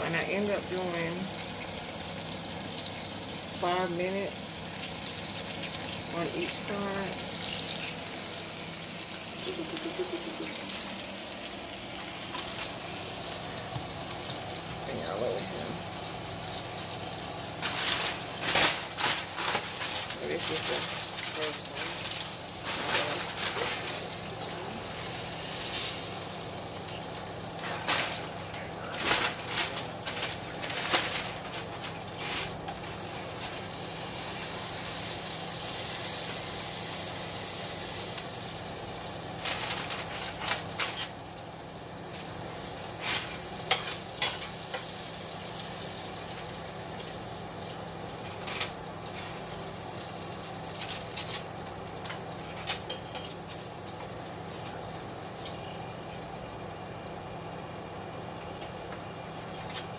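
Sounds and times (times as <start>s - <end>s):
steak sizzling: 0.0s - 59.9s
foil crinkling: 9.4s - 13.4s, 16.4s - 41.3s, 41.9s - 55.6s.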